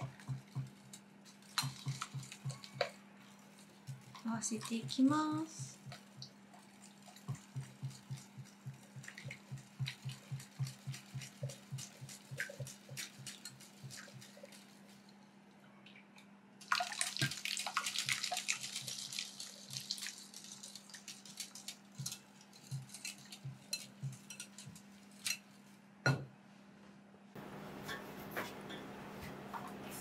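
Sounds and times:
liquid pouring into bowl: 16.6s - 24.8s.

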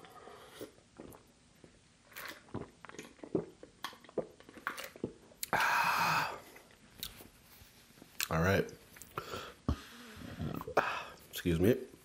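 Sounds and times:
man gulping a drink: 0.0s - 7.3s, 9.0s - 11.2s.

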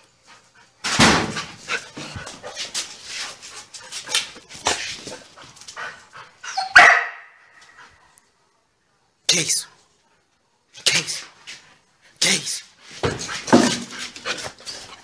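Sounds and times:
small dog barking: 6.6s - 7.5s.

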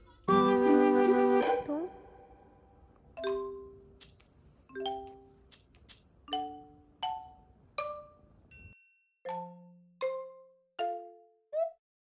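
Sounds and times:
soft chime-like music notes: 6.3s - 11.4s.

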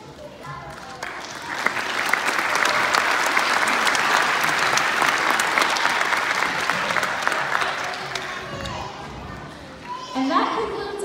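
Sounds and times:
audience applauding: 0.5s - 9.0s.

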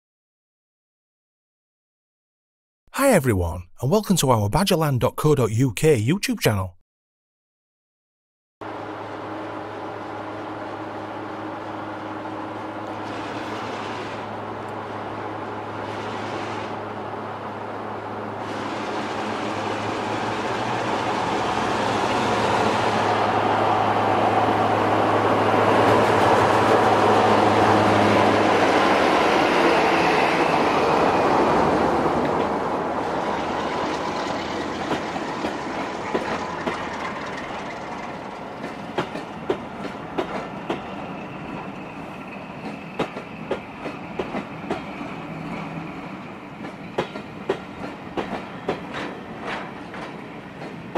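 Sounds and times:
diesel locomotive engine: 8.6s - 50.9s
wheels clicking over rail joints: 33.9s - 40.9s.

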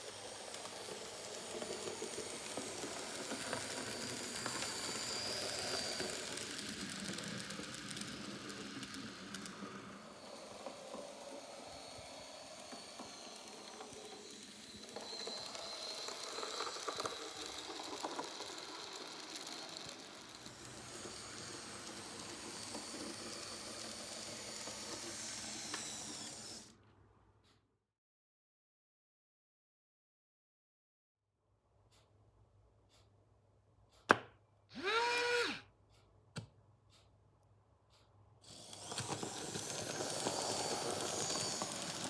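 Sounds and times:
model train motor whine: 0.0s - 26.7s, 34.7s - 35.6s, 38.4s - 42.0s
tiny wheels rattling on track: 0.0s - 26.7s, 38.5s - 42.0s.

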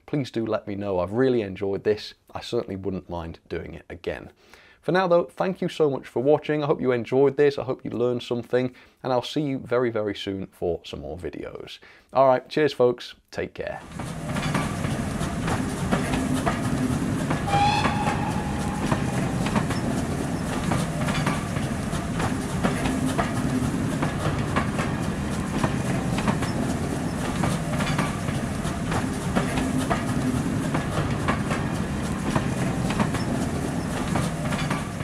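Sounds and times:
train carriages rumbling past: 13.8s - 35.0s
wheels clicking over rail joints: 13.8s - 35.0s
brief high-pitched tone: 17.5s - 19.9s.

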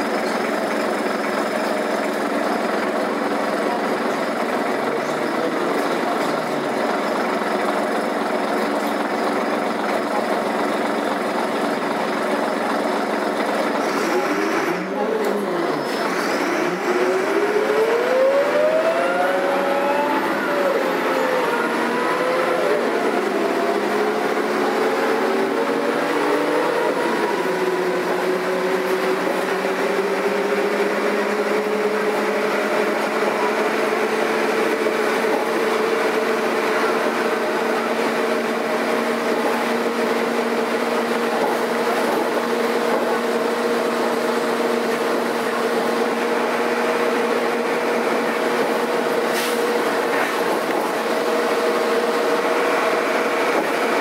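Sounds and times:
bus diesel engine: 0.0s - 54.0s.

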